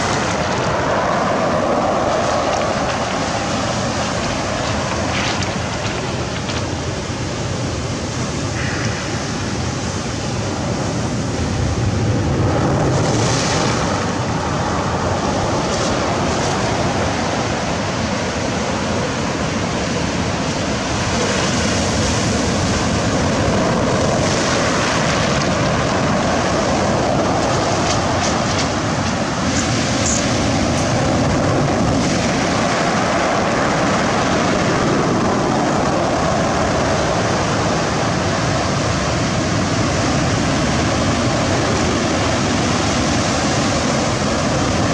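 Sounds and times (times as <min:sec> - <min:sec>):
sea surf breaking: 0:00.0 - 0:44.9
wind on microphone: 0:00.0 - 0:44.9.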